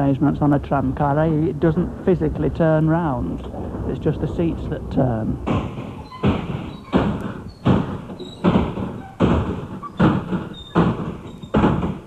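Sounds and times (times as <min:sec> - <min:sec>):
seat backs flipping with a thump: 0:05.4 - 0:12.0.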